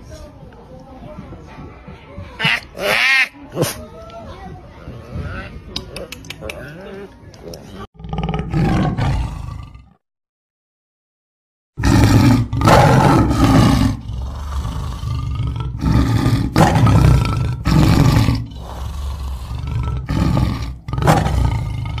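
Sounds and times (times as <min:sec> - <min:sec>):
tiger roaring: 0:08.0 - 0:10.0, 0:11.8 - 0:22.0
tiger rumbling: 0:08.0 - 0:10.0, 0:11.8 - 0:22.0.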